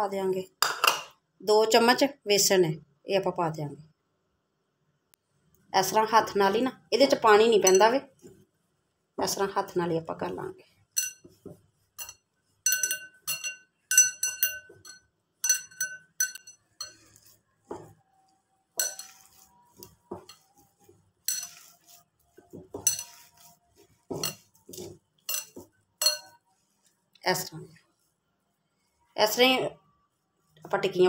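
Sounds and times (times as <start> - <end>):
glass bowl clinking: 7.6 - 8.0, 11.0 - 11.4, 12.0 - 18.0, 18.8 - 20.6, 21.2 - 22.0, 22.6 - 26.4.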